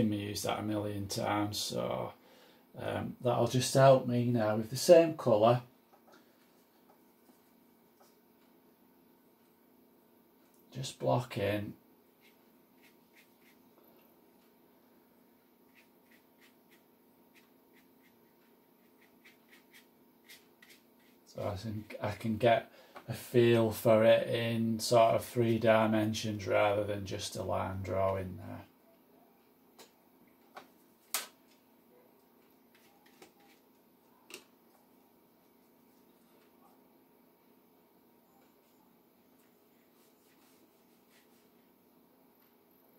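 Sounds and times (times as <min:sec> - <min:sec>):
faint steady hum: 0:00.0 - 0:42.9
brush scratching on paper: 0:12.2 - 0:13.6, 0:15.6 - 0:21.3, 0:39.8 - 0:41.5.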